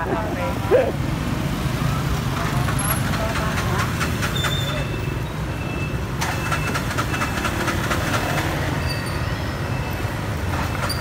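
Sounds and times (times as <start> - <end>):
rapid clatter: 2.4 - 4.7.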